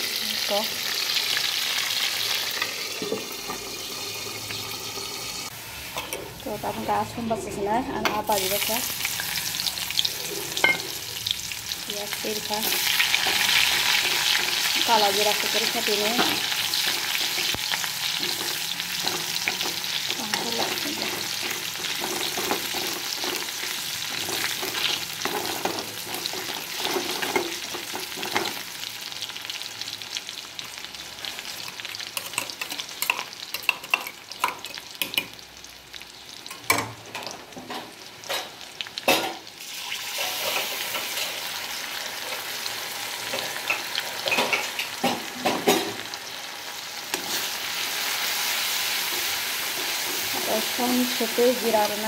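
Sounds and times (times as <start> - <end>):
spatula scraping and tapping wok: 16.2 - 28.6, 47.1 - 47.6
paste sizzling in oil: 39.5 - 45.0, 46.0 - 52.0.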